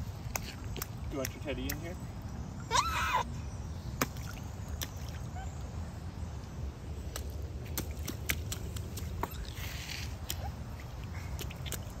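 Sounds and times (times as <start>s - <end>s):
boots splashing in puddle: 0.0s - 1.8s, 7.0s - 12.0s.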